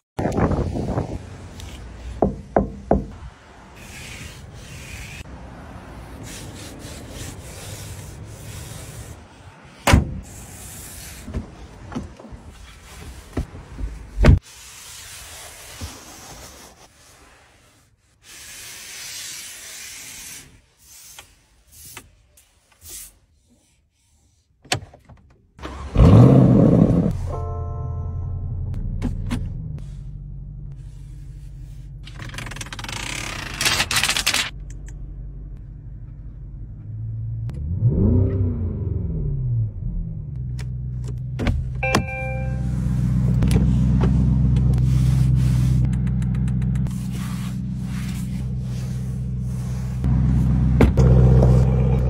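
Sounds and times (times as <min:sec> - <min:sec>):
car engine starting with exhaust burst: 0:25.6 - 0:27.3.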